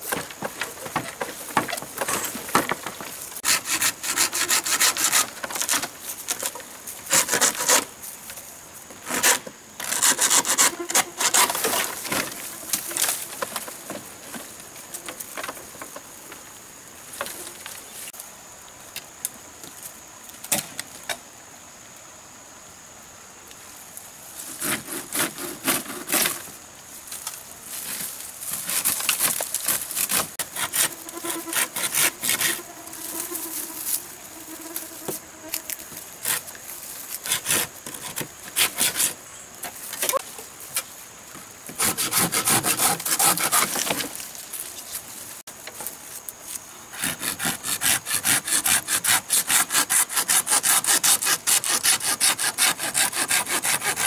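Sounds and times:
bamboo stems knocking and scraping: 0.0s - 18.3s, 24.4s - 54.0s
bamboo leaves rustling: 0.0s - 21.0s, 23.6s - 48.7s
high insect buzz: 0.0s - 54.0s.

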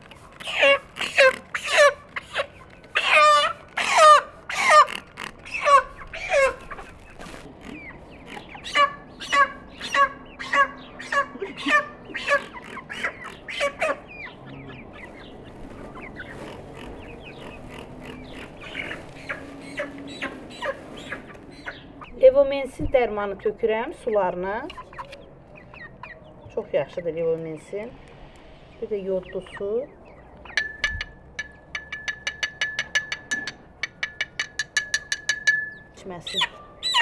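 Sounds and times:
chickens squawking: 0.0s - 22.3s, 24.0s - 26.6s, 36.2s - 37.0s
chickens clucking: 0.0s - 26.8s, 35.8s - 37.0s.

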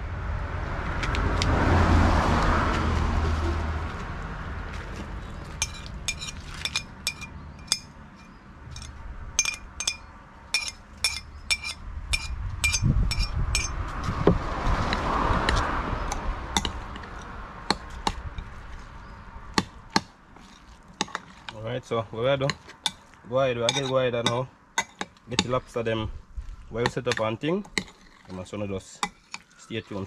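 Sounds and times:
metal spoon clinking on glass: 5.6s - 7.9s, 8.7s - 13.7s, 23.7s - 25.1s.

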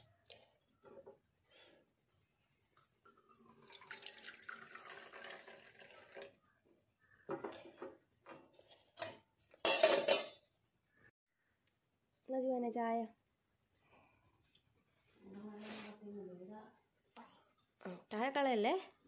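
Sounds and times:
tea pouring into metal mug: 3.3s - 6.4s
metal pan clanking on grate: 9.6s - 10.4s.

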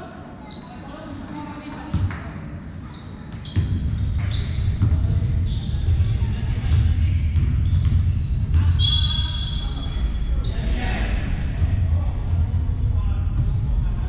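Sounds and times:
shoe squeak: 0.4s - 6.3s, 7.1s - 10.7s, 13.3s - 14.0s
basketball bouncing: 3.4s - 8.8s
indistinct voices: 8.2s - 14.0s.

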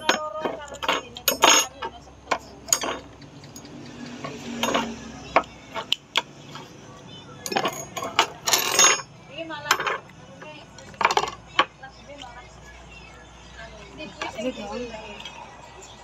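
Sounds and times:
chopsticks clicking against bowl: 5.4s - 6.3s.

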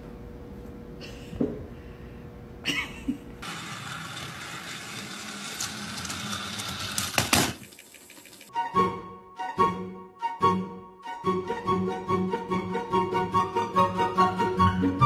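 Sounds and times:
toy train motor whirring: 3.4s - 8.5s.

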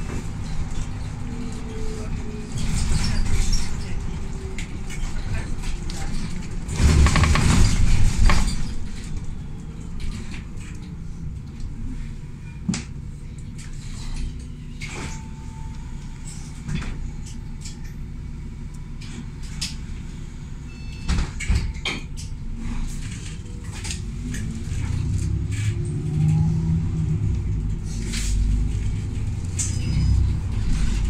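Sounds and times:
bus engine and road rumble: 0.0s - 31.0s
knocks and rattles: 4.8s - 9.2s.

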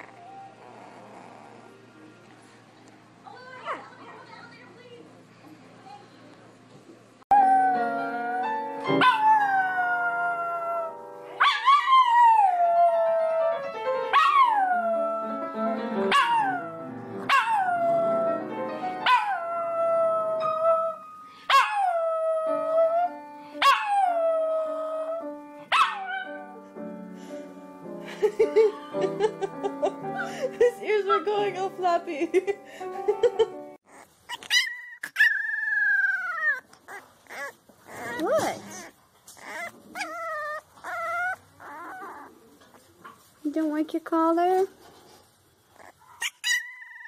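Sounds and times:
quiet music: 0.0s - 6.5s, 7.3s - 33.8s
puppy howling: 7.3s - 15.5s, 16.1s - 18.4s, 19.0s - 26.4s, 33.9s - 42.8s, 45.8s - 47.0s.

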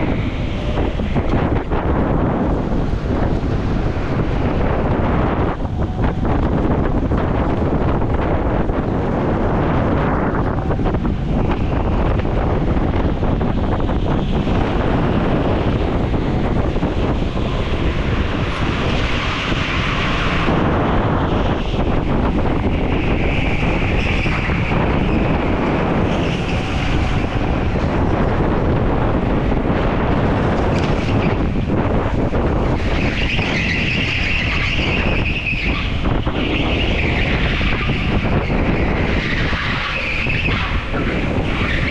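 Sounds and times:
go-kart motor rushing: 0.0s - 41.9s
wind buffeting microphone: 0.0s - 41.9s
tyres squealing: 32.5s - 41.9s.

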